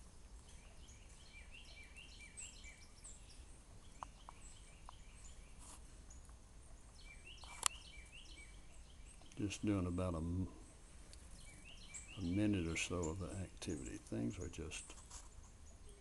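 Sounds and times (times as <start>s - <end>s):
songbirds chirping: 0.0s - 16.0s
sharp click: 7.4s - 7.8s.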